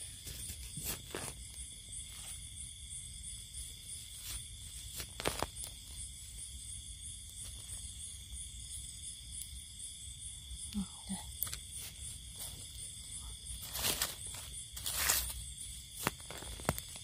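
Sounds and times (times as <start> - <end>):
night insects chirping: 0.0 - 17.0
footsteps in dry leaves: 13.6 - 16.6.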